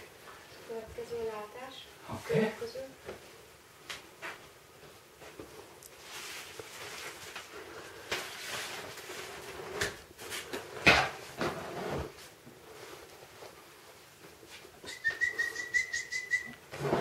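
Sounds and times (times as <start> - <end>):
umbrella fabric rustling: 5.2 - 14.8.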